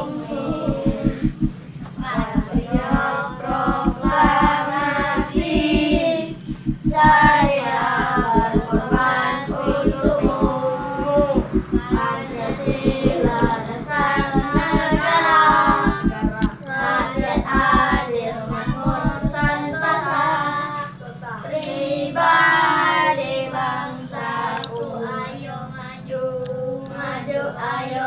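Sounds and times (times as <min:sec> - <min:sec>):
low pulsing beat: 0:00.0 - 0:19.6.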